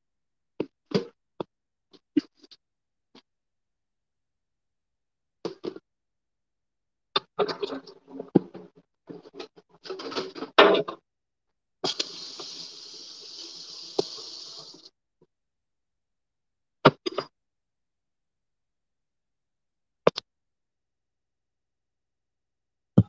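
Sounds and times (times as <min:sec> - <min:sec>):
steady hiss: 0:11.8 - 0:14.9.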